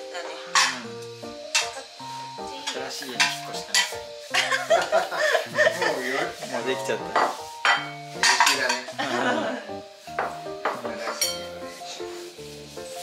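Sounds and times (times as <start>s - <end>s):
light background music: 0.0s - 13.0s
ceramic plates clinking: 2.7s - 5.0s, 5.6s - 9.4s, 10.2s - 11.6s
plates set down on wooden table: 7.1s - 8.9s, 10.1s - 11.5s.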